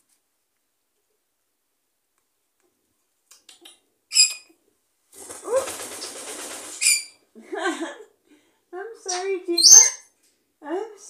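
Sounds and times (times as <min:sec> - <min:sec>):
parrot high squeak: 0:04.1 - 0:04.5, 0:06.8 - 0:07.2, 0:09.6 - 0:10.0.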